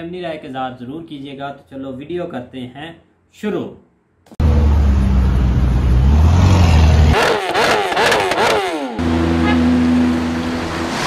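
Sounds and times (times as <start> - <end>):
car engine rumbling: 4.4 - 7.3
engine running at steady pitch: 4.4 - 11.0
motorbike engine revving: 4.4 - 11.0.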